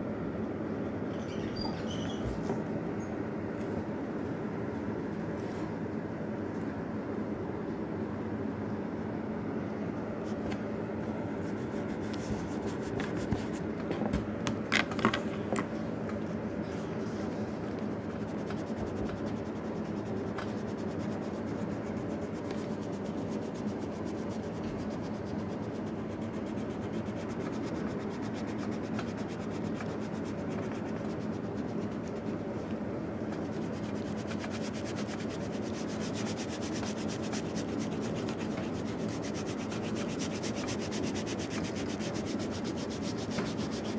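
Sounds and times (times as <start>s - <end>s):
coloring stick rubbing on paper: 11.4s - 13.7s, 17.5s - 43.9s.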